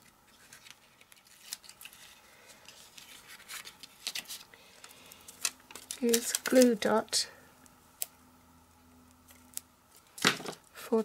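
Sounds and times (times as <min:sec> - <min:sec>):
cardstock folding and creasing: 0:00.0 - 0:06.9.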